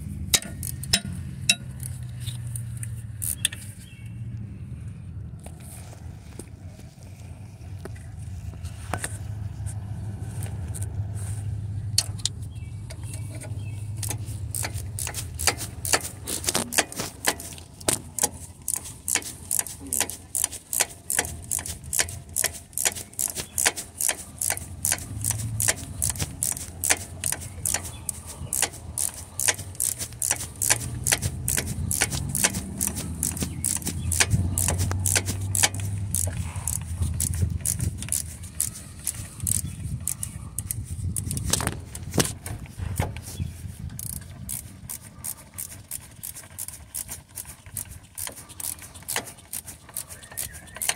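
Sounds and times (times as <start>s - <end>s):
hand ratchet clicking: 0.3s - 3.6s, 12.0s - 42.3s, 43.9s - 50.9s.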